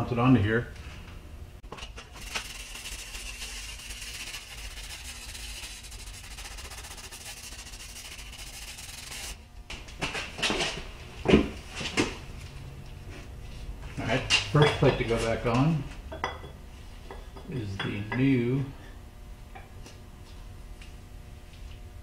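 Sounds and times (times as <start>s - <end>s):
aerosol spray hissing: 2.2s - 9.4s.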